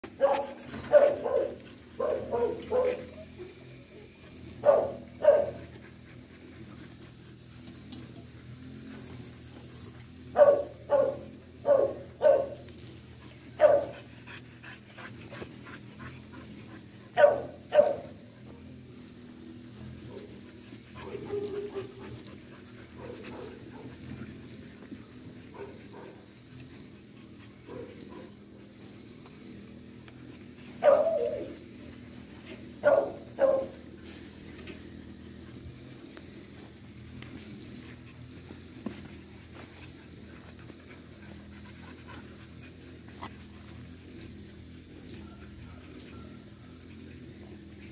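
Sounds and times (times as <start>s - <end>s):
dog barking: 0.2s - 3.1s, 4.6s - 5.6s, 10.4s - 12.6s, 13.6s - 13.9s, 17.2s - 18.1s, 30.8s - 31.5s, 32.8s - 33.8s.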